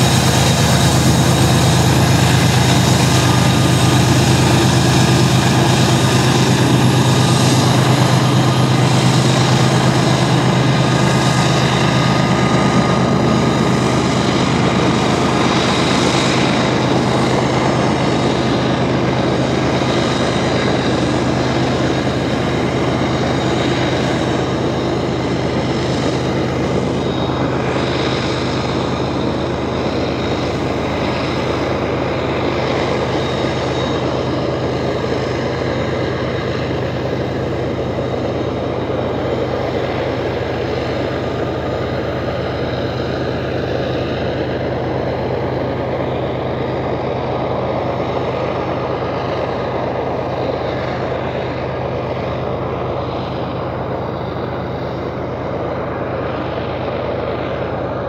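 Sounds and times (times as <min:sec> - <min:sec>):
train wheels on rails: 0:00.0 - 0:52.8
diesel locomotive engine drone: 0:00.0 - 0:58.0.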